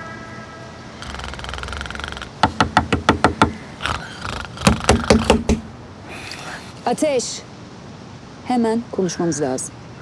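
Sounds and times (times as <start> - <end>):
fingers tapping on wooden plank: 1.0 - 3.6, 4.6 - 5.7.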